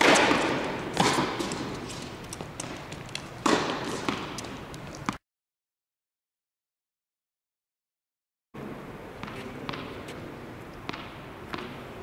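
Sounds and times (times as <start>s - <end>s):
ball bounces: 0.0s - 5.2s, 9.2s - 10.2s, 10.8s - 11.9s
tennis ball hit by racket: 0.0s - 5.2s, 9.2s - 10.2s, 10.8s - 11.8s.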